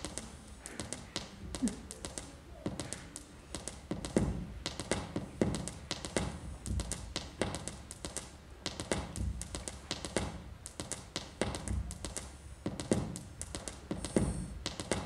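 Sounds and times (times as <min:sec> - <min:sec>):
sharp taps and clicks: 0:00.0 - 0:15.0
low thumps: 0:08.9 - 0:09.6.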